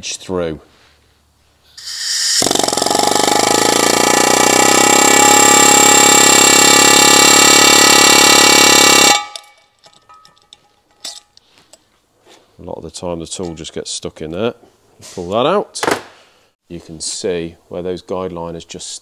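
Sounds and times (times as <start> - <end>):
short hiss of air: 1.7 - 2.4
pneumatic air hammer: 1.8 - 9.5.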